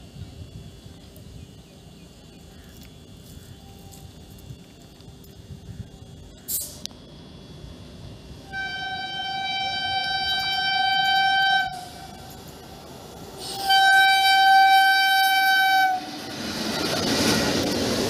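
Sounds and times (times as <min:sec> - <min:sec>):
train rumble: 0:00.0 - 0:18.0
locomotive horn blasts: 0:08.5 - 0:12.4, 0:13.4 - 0:16.2.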